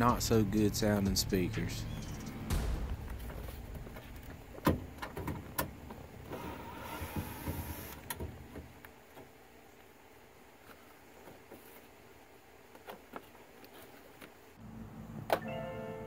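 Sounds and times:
cordless drill whirring: 6.3s - 8.0s.

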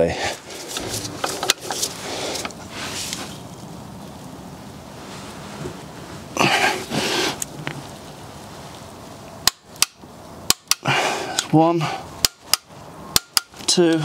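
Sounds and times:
man straining exhale: 6.4s - 7.4s, 10.8s - 12.0s.

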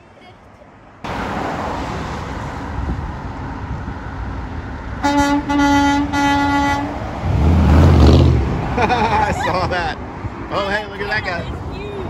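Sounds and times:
traffic noise: 0.0s - 12.0s
truck engine: 0.0s - 12.0s
truck horn blasts: 5.0s - 7.0s.

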